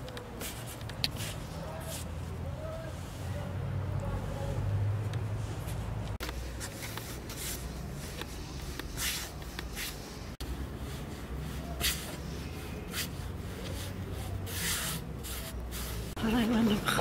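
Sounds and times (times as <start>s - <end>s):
hands kneading dough on wood: 5.1s - 16.2s.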